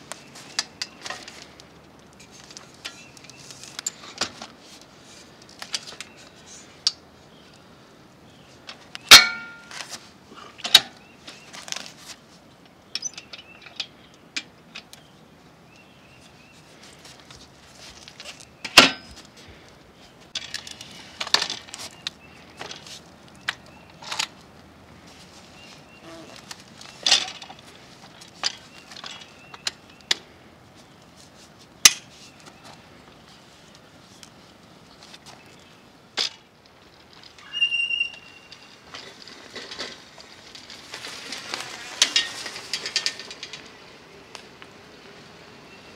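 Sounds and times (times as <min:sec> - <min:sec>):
bike frame hinges clacking: 0:08.7 - 0:10.0, 0:12.6 - 0:15.1, 0:17.0 - 0:19.3, 0:26.0 - 0:30.2, 0:31.8 - 0:32.7, 0:36.2 - 0:44.7
sharp metallic clank: 0:09.1 - 0:09.7.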